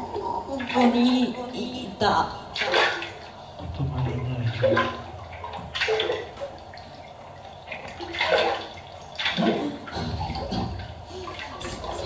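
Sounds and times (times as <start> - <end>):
processed woman's voice fragments: 0.0 - 2.6.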